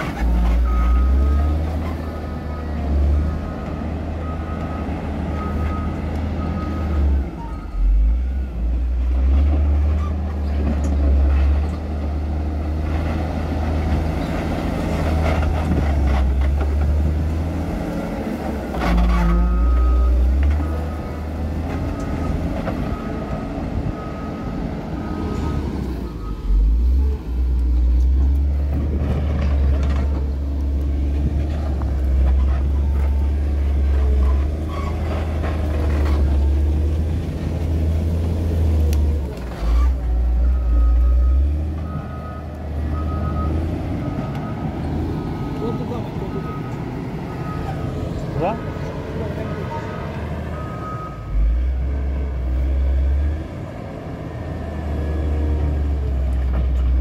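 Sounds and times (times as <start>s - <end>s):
diesel engine working under load: 0.0s - 57.0s
reversing alarm beeping: 40.4s - 48.6s, 49.4s - 51.5s.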